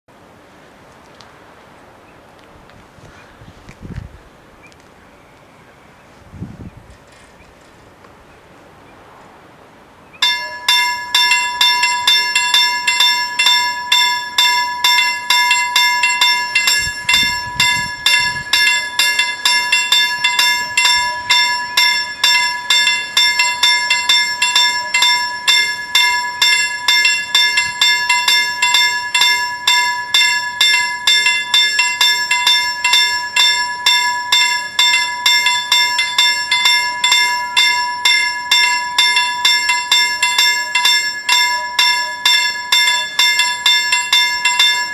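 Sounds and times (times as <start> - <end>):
level crossing bells ringing: 10.2 - 44.9.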